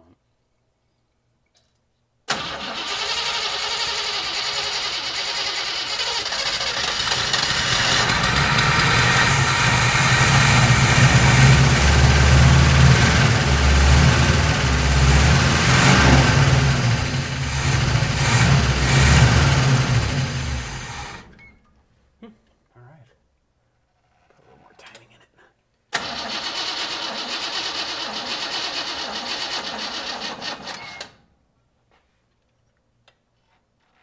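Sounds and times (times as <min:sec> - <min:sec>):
truck engine starting and running: 0:02.3 - 0:21.5, 0:25.9 - 0:31.2
person speaking: 0:22.2 - 0:23.2, 0:24.4 - 0:25.6.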